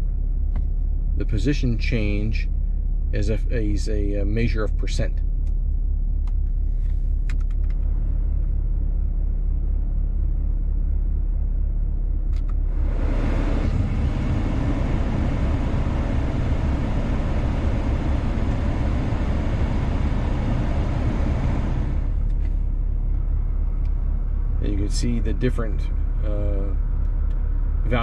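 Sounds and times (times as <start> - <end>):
car engine idling: 0.0 - 28.0
air rushing from vents: 12.0 - 28.0.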